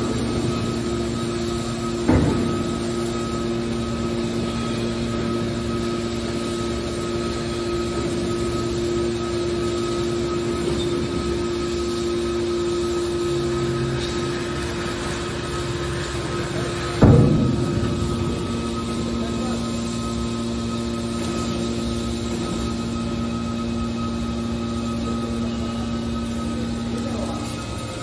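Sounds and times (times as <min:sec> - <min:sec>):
hydraulic baler hum and whine: 0:00.0 - 0:28.0
sharp metallic clunk: 0:02.0 - 0:03.0, 0:17.0 - 0:20.2.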